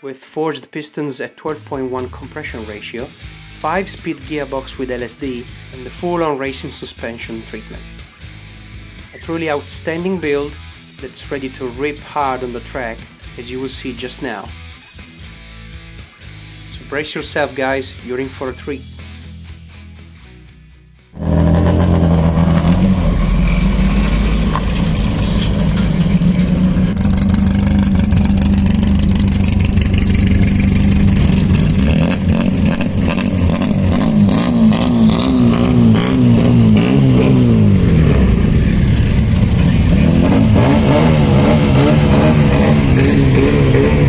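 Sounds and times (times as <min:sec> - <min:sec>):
race car engine revving: 0:21.2 - 0:44.0.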